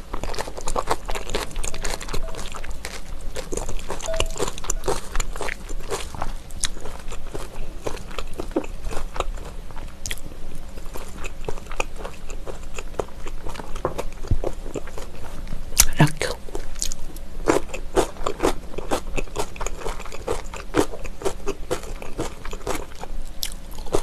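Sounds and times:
close chewing: 0.0 - 15.9, 16.5 - 24.0
chopsticks in a glass bowl: 1.1 - 3.1, 3.8 - 5.2.

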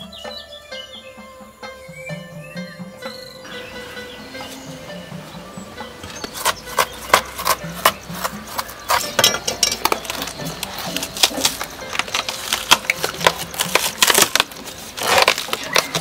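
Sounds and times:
plant stem sheaths tearing: 9.8 - 16.0.

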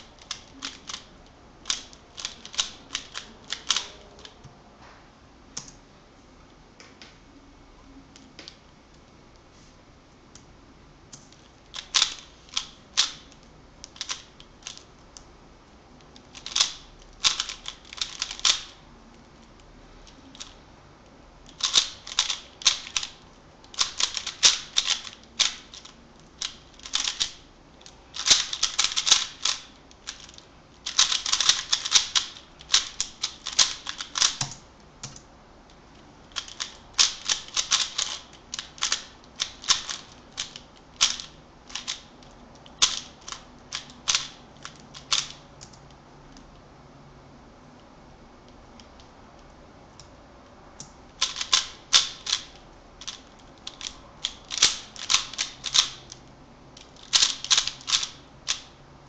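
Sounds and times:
puzzle cube clicking: 0.2 - 4.4, 11.2 - 14.9, 16.1 - 18.8, 21.5 - 35.2, 36.3 - 46.4, 51.2 - 56.2, 56.8 - 58.7.

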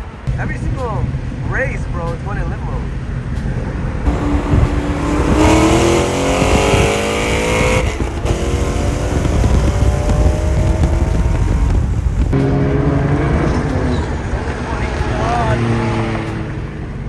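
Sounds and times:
road and wind noise: 0.0 - 17.0
car engine accelerating hard: 3.8 - 17.0.

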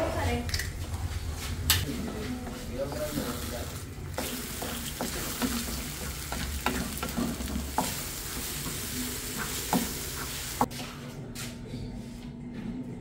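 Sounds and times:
eggs sizzling in a frying pan: 2.9 - 10.7
spatula scraping and tapping pan: 4.2 - 10.8.

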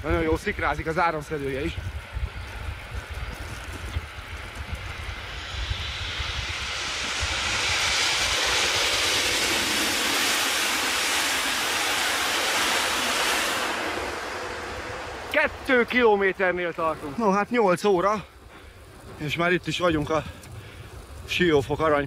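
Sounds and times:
electric train passing: 3.9 - 19.8.

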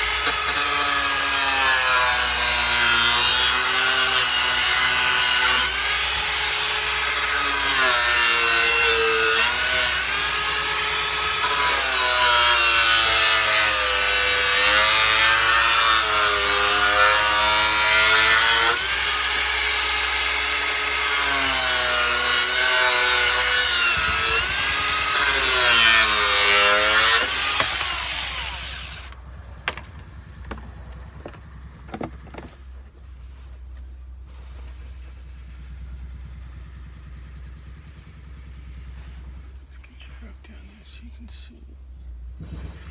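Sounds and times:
angle grinder cutting plastic: 0.0 - 30.6.

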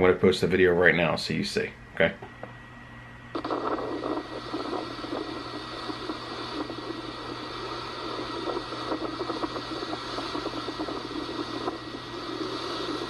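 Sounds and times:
wind buffeting microphone: 3.4 - 13.0.

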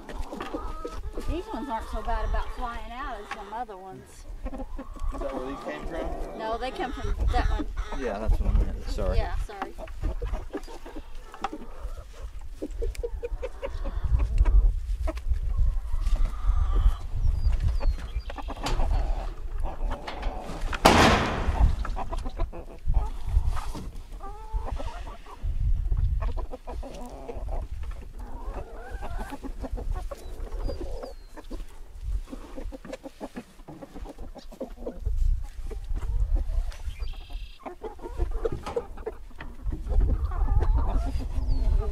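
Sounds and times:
hens clucking: 0.0 - 41.9.

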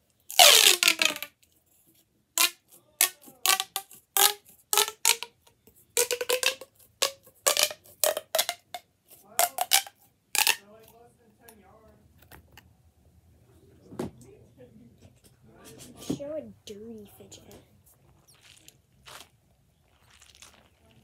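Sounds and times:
plastic pop tube popping: 0.3 - 1.4, 2.4 - 5.4, 6.0 - 10.6.

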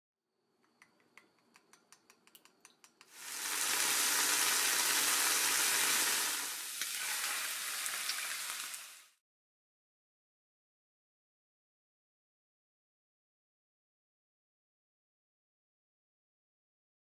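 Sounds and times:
food sizzling in a frying pan: 3.1 - 9.2.

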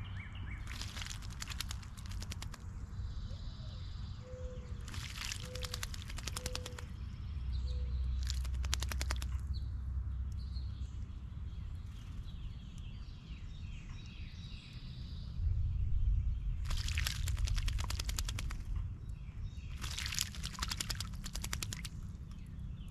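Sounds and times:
bird wings splashing in water: 0.6 - 2.7, 4.8 - 6.9, 8.2 - 9.4, 16.6 - 18.8, 19.7 - 22.1.

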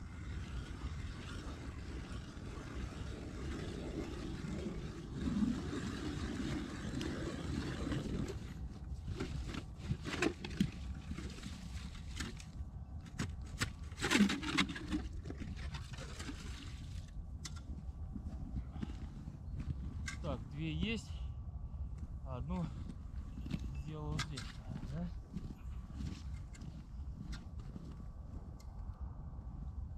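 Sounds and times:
ice auger scraping ice: 0.0 - 17.1
wind rumble on microphone: 0.0 - 29.9.

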